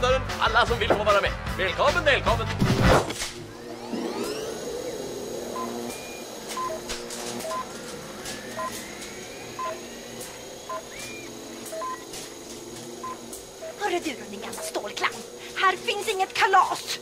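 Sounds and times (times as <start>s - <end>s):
low electronic drone: 3.2s - 16.4s
faint rising whistles: 7.4s - 12.1s.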